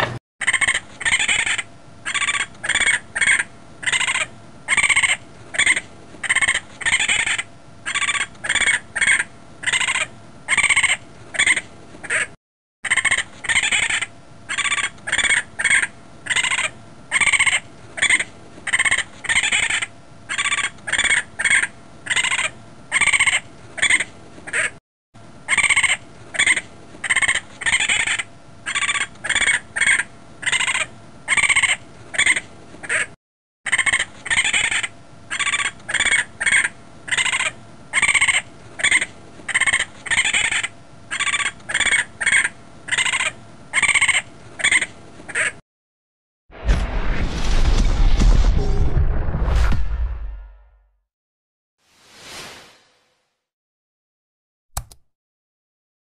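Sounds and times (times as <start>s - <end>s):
raccoon calling: 0.4s - 12.3s, 12.9s - 24.7s, 25.5s - 33.1s, 33.7s - 45.6s.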